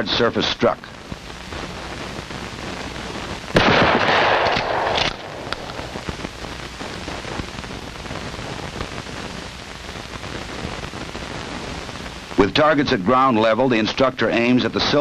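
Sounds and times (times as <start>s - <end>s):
film soundtrack hiss: 0.0s - 15.0s
shotgun blast: 3.5s - 6.0s.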